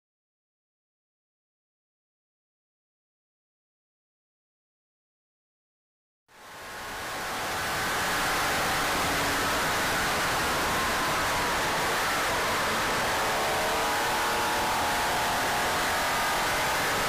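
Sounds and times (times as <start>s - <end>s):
engine drone: 6.3s - 17.0s
wind and road noise: 6.4s - 17.0s.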